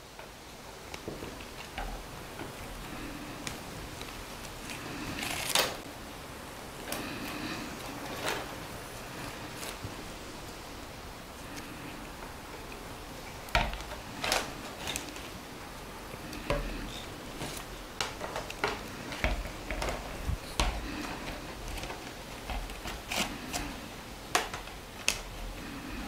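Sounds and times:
willow rods clicking and rustling: 0:00.0 - 0:05.9, 0:11.3 - 0:26.0.

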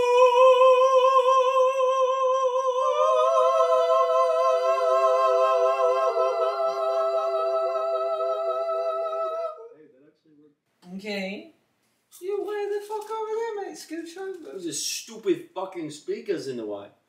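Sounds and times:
voices holding a cappella chord: 0:00.0 - 0:10.0.

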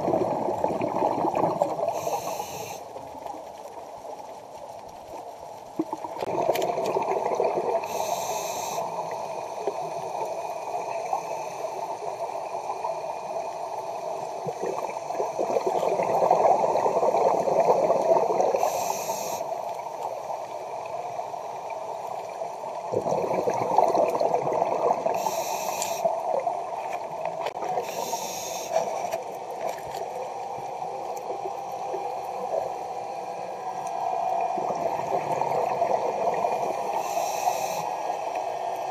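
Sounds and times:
gurgling air bubbles underwater: 0:00.0 - 0:02.3, 0:05.8 - 0:08.3, 0:14.3 - 0:18.8, 0:22.7 - 0:25.5, 0:34.4 - 0:37.0
regulator inhalation hisses: 0:01.9 - 0:02.9, 0:07.8 - 0:12.0, 0:18.5 - 0:19.6, 0:25.1 - 0:26.3, 0:27.8 - 0:29.1, 0:36.6 - 0:38.6.

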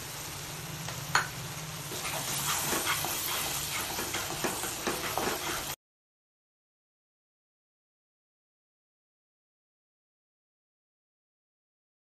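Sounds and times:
masala sizzling in pan: 0:00.0 - 0:05.8
wooden spatula scraping pan: 0:01.9 - 0:05.8.

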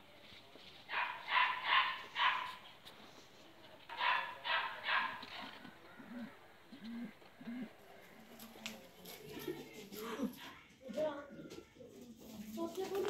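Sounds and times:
dog barking: 0:00.9 - 0:02.6, 0:03.9 - 0:05.4.

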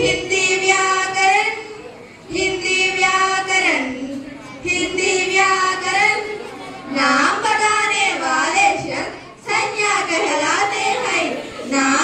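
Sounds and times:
child singing: 0:00.0 - 0:06.4.

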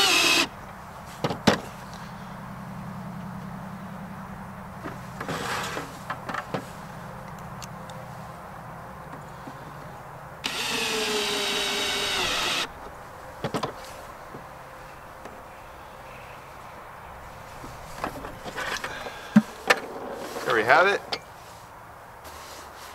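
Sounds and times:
cordless drill running: 0:00.0 - 0:00.5, 0:10.4 - 0:12.7.

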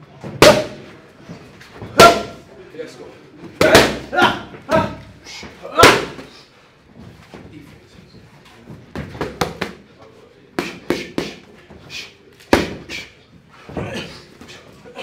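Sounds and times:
boxing gloves hitting focus mitts: 0:00.2 - 0:02.5, 0:03.4 - 0:06.4, 0:08.6 - 0:09.9, 0:10.5 - 0:13.1.

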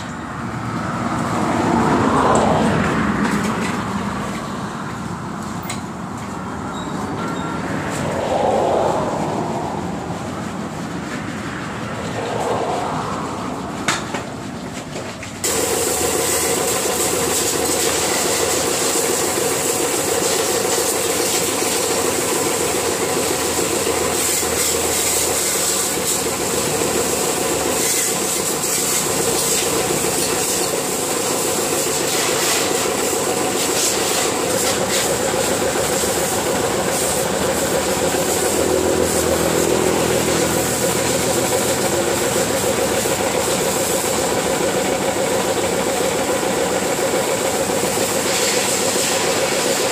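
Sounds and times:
pressure washer pump humming: 0:00.0 - 0:49.9
water jet hissing: 0:15.4 - 0:49.9.

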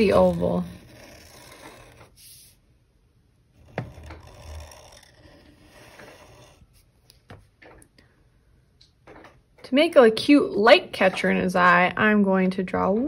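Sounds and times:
marker scratching on paper: 0:00.0 - 0:02.6, 0:03.6 - 0:06.9.

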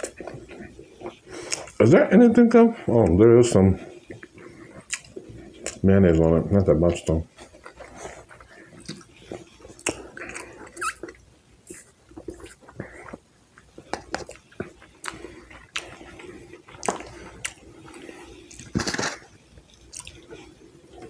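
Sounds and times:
wet chewing: 0:00.0 - 0:01.8, 0:02.9 - 0:21.0
lip smacks and clicks: 0:04.1 - 0:05.8, 0:07.6 - 0:16.0
food handling noise: 0:11.8 - 0:21.0.

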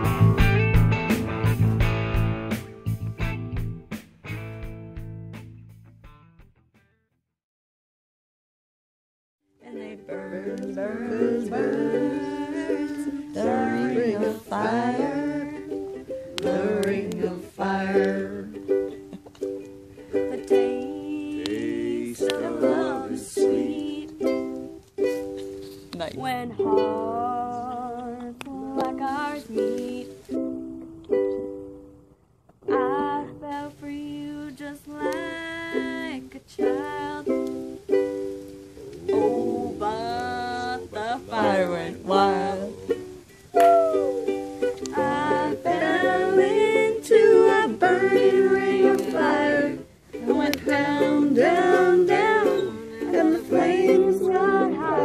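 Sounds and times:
person singing: 0:09.6 - 0:31.5, 0:32.6 - 0:37.9, 0:38.8 - 0:55.0
strummed string instrument: 0:09.6 - 0:31.9, 0:34.6 - 0:55.0.

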